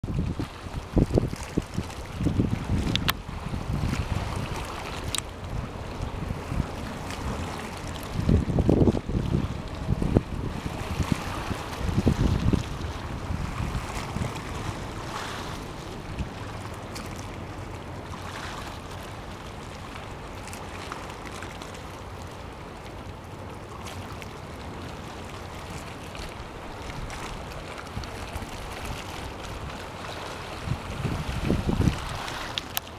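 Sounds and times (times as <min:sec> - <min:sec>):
wind rumbling on microphone: 0:00.0 - 0:21.4, 0:23.9 - 0:32.9
soft wash of water: 0:00.0 - 0:32.9
faint ticks: 0:05.1 - 0:05.3.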